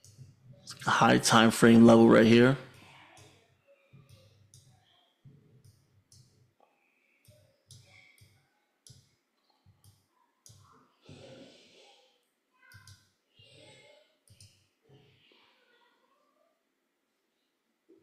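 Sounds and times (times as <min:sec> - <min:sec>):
computer mouse clicks: 0:14.3 - 0:14.6.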